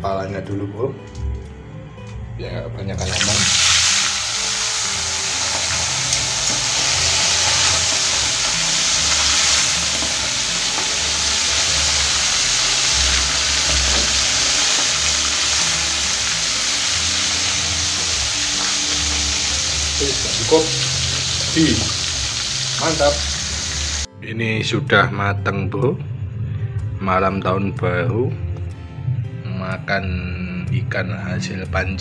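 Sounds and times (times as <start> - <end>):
oil sizzling in deep-frying: 3.0 - 24.1.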